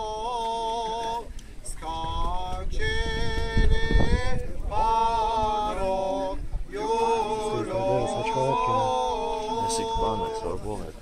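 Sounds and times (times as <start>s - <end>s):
man chanting: 6.9s - 11.0s.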